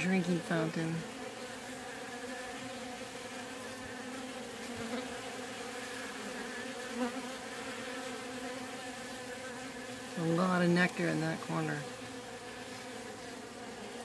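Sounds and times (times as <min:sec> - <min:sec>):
honey bees buzzing: 0:00.0 - 0:14.0.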